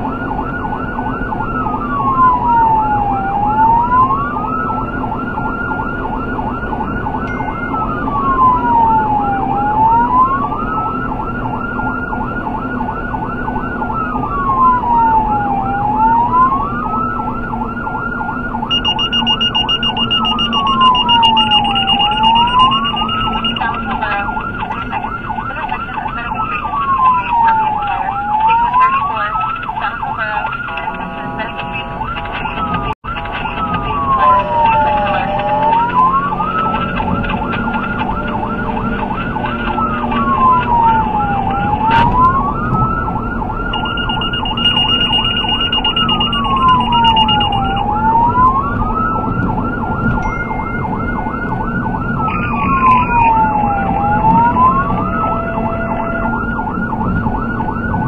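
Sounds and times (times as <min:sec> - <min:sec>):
emergency siren wailing: 0:00.0 - 0:58.0
road and engine drone: 0:00.0 - 0:58.0
siren yelp warbling: 0:00.0 - 0:58.0
high pulsing tone: 0:07.2 - 0:08.8, 0:18.7 - 0:24.9, 0:43.7 - 0:48.4.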